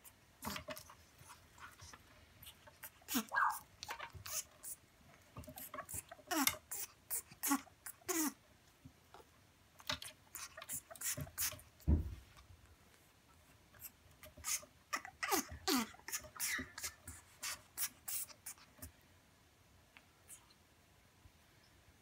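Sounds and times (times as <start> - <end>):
low thump: 11.9 - 12.3.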